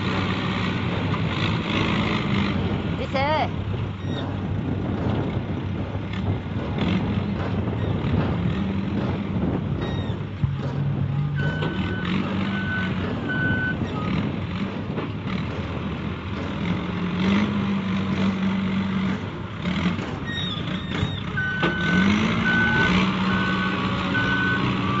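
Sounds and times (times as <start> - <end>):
diesel engine revving: 0.0 - 25.0
reversing alarm beeping: 11.3 - 14.2, 20.3 - 25.0.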